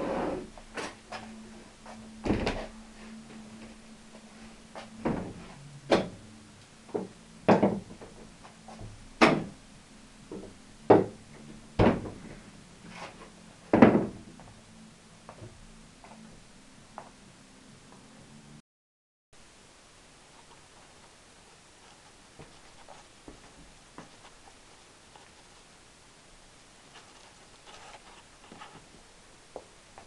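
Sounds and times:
folding table knocking shut: 13.7 - 14.2.

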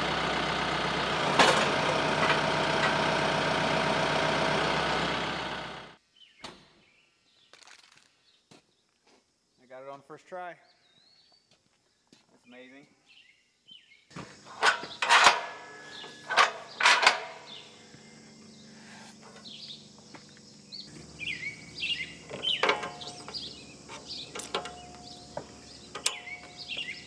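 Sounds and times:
loud metal lever clanks: 14.6 - 17.7, 22.4 - 23.4
birds chirping: 14.8 - 27.0
light metallic clicks of couplers: 25.9 - 26.6.

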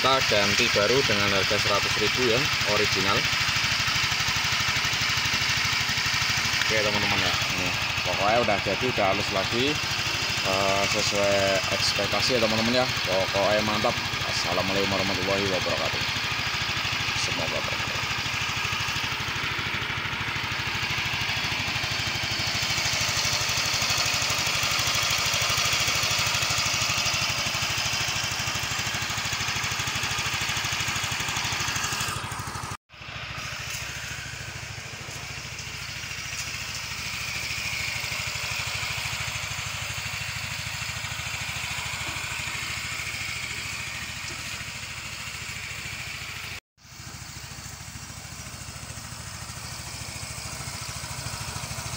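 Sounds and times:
motorcycle engine idling: 0.0 - 51.9.

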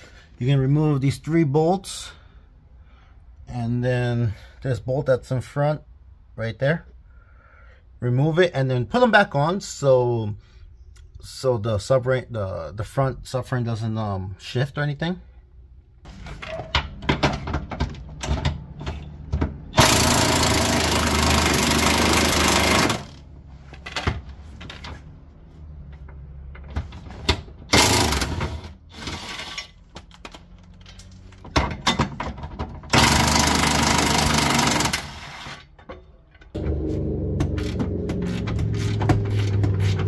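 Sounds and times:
impact wrench hammering: 17.0 - 23.2, 27.7 - 28.6, 32.9 - 35.2, 36.6 - 40.0.

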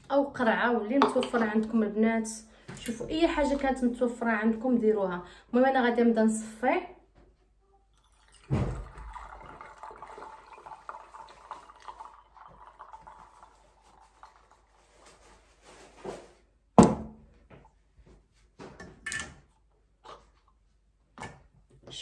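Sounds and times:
liquid trickling into bottle: 7.9 - 14.8.

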